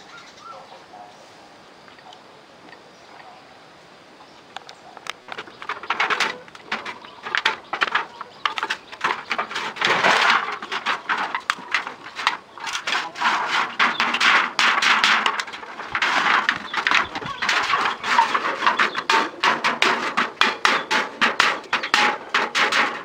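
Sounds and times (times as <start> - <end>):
corrugated metal sheet rattling: 5.2 - 23.0.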